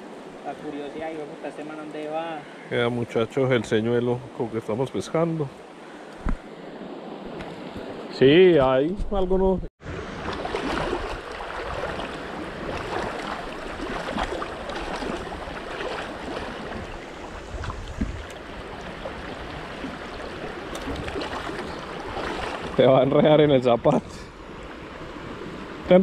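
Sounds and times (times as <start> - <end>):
water babbling over stones: 10.1 - 23.0.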